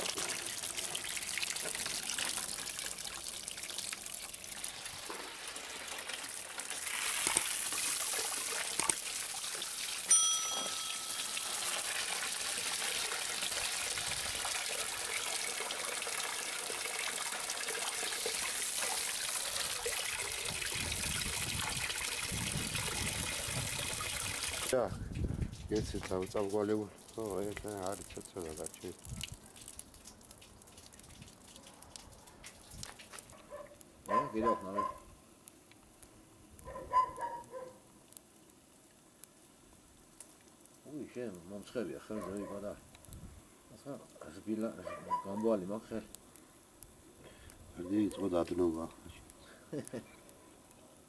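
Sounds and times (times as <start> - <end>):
water jet splashing into basin: 0.0 - 24.8
ringing clink: 10.1 - 11.6.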